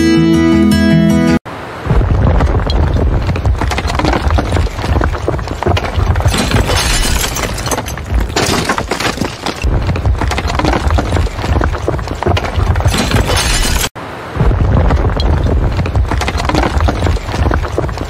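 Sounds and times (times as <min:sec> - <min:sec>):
low rumble: 0:01.9 - 0:06.6
concrete debris crashing: 0:01.9 - 0:18.0.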